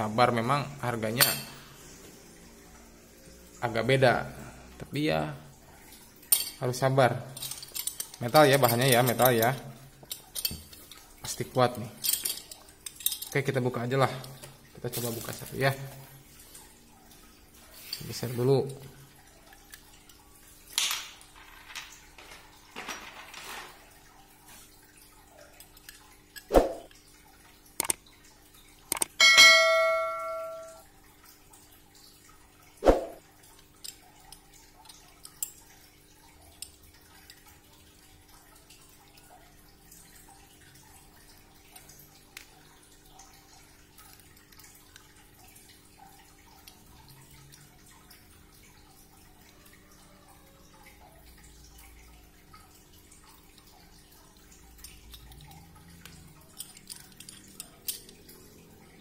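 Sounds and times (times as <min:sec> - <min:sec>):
sharp clicks and knocks: 0:27.8 - 0:28.0, 0:28.9 - 0:29.2
metal part ringing: 0:29.2 - 0:30.8.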